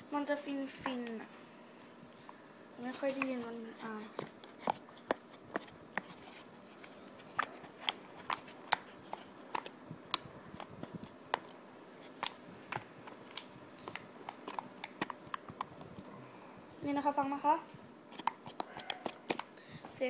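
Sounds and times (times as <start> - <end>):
slime popping and clicking: 12.2 - 15.9.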